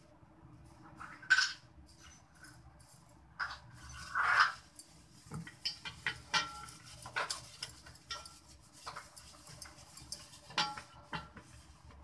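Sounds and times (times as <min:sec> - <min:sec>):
steel plate clinking and knocking: 0:05.4 - 0:11.4.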